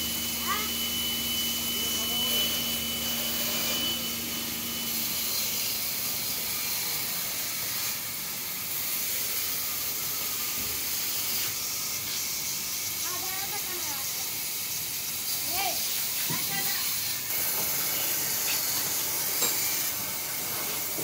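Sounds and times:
spray gun hissing: 4.4 - 21.0.

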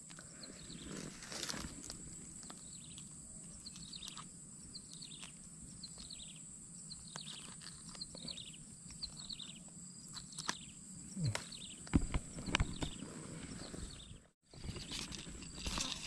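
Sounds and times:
faint bird chirps: 2.5 - 15.0.

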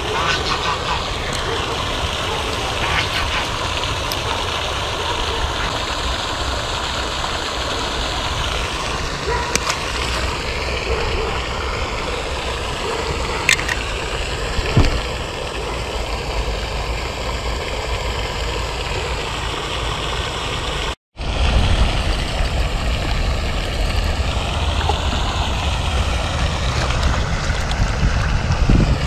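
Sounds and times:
wind on microphone: 21.2 - 29.0.

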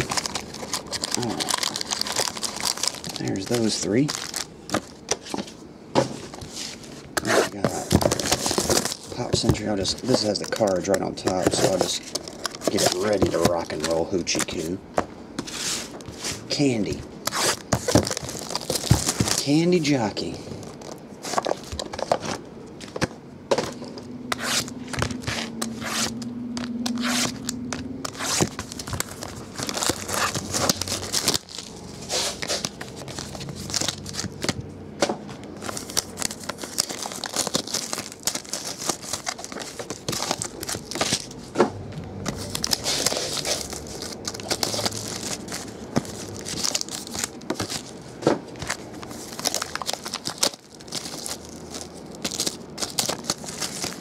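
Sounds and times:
wrappers torn and crinkled: 0.0 - 5.1, 7.2 - 14.8, 16.5 - 21.0, 24.4 - 34.6, 35.4 - 41.4, 42.2 - 54.0
cards tapping and clicking: 7.2 - 15.1.

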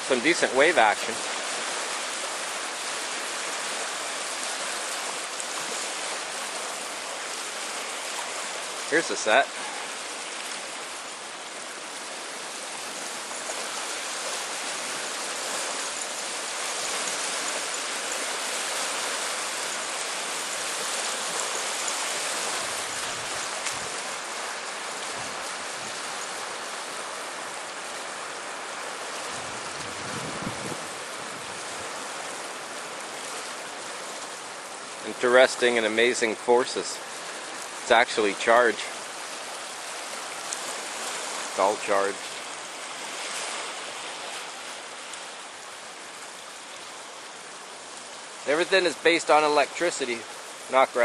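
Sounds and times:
small waves on pebbly shore: 0.0 - 51.0.

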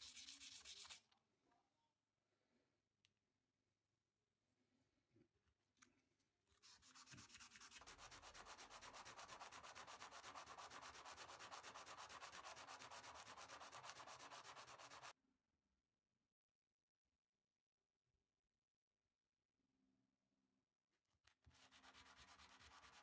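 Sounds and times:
metal part rubbed on sandpaper: 0.0 - 1.0, 6.6 - 15.1.

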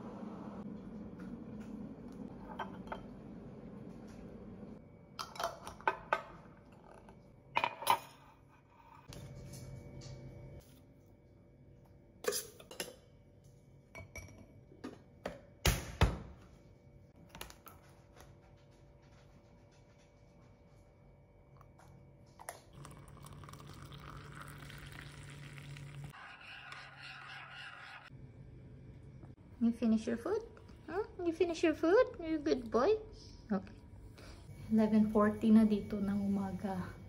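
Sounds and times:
spoon stirring in a mug: 22.8 - 28.1.

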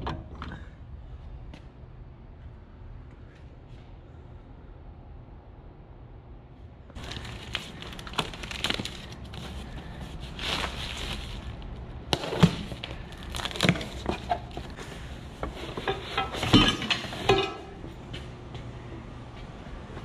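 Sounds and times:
cardboard flaps scraping and crackling: 7.0 - 14.9.

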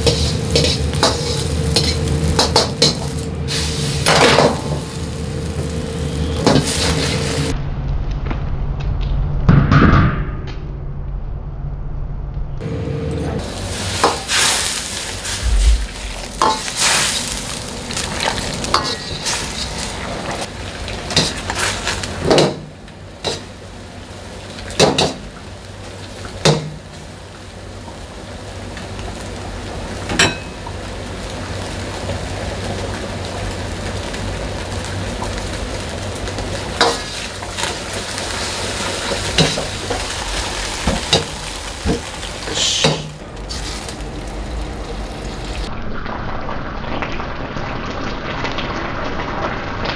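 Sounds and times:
metal ladle clanking in a wok: 0.0 - 3.2
sauce sizzling and bubbling: 0.0 - 7.6, 13.4 - 49.9.

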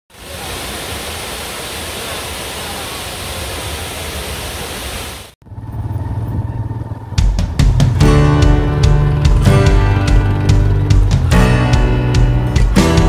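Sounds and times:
waterfall pouring over rocks: 0.1 - 5.4.

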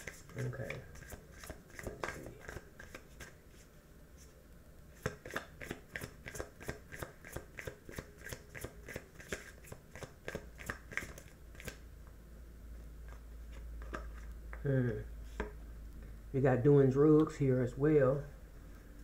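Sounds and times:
cards being shuffled by hand: 0.0 - 3.7, 5.0 - 11.8.

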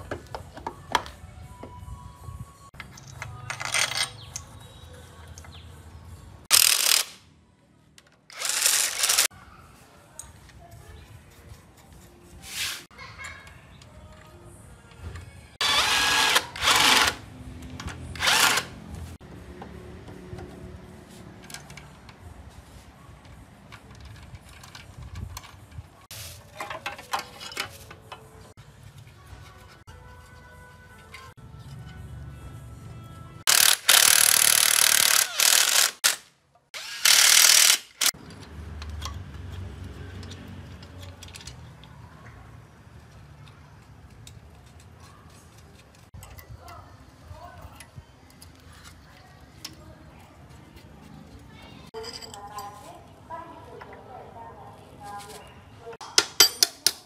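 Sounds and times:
impact wrench running: 6.5 - 7.2, 8.3 - 9.3, 15.6 - 17.2, 18.2 - 18.7, 33.5 - 36.2, 36.8 - 38.1
metal clinks and knocks: 23.2 - 28.5, 51.9 - 53.0, 56.0 - 57.0.

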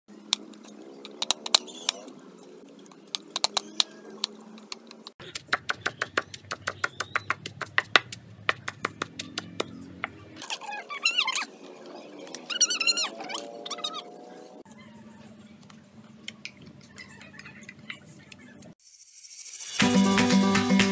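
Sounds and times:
pestle pounding in stone mortar: 5.2 - 9.7
cleaver chopping on wooden board: 5.3 - 10.2.

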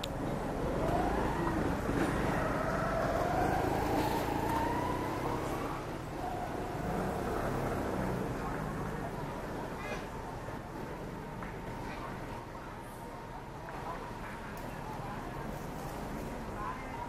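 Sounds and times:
passing vehicle engine: 0.0 - 12.2.

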